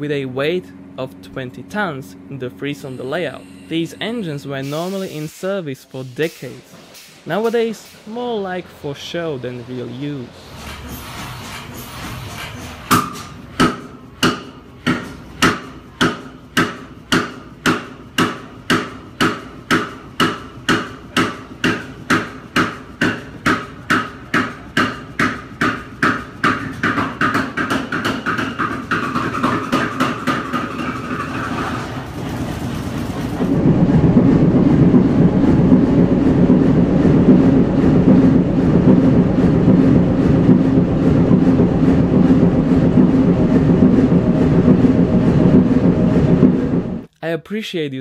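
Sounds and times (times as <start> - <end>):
low engine rumble: 0.0 - 17.6, 30.6 - 47.1
diesel engine exhaust knocks: 12.9 - 47.1.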